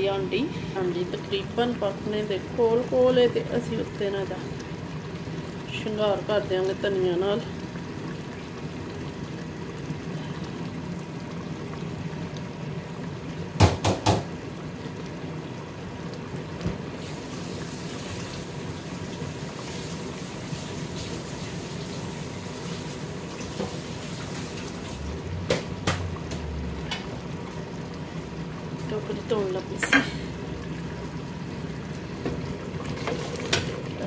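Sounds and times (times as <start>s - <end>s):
low bubbling hiss of simmering: 0.0s - 34.0s
sharp knocks: 13.6s - 14.3s.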